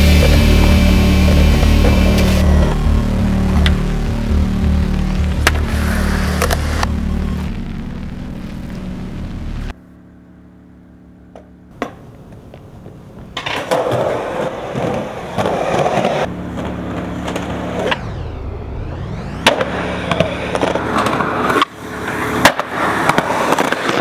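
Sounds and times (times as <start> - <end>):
skateboard wheels rolling on concrete: 0.0 - 7.6, 11.3 - 18.3, 18.9 - 24.0
backing music: 0.0 - 9.7.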